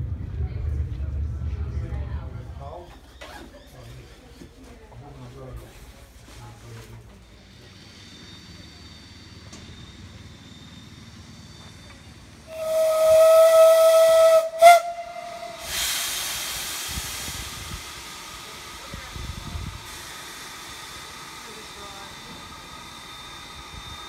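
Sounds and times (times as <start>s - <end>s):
steam hissing: 7.2s - 24.0s
steam locomotive whistle: 12.4s - 16.1s.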